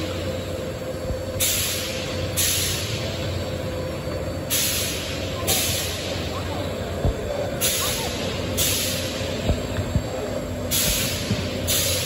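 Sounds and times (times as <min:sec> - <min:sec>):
machine humming: 0:00.0 - 0:12.0
short compressed air hisses: 0:01.4 - 0:03.1, 0:04.5 - 0:06.2, 0:07.6 - 0:09.5, 0:10.7 - 0:12.0.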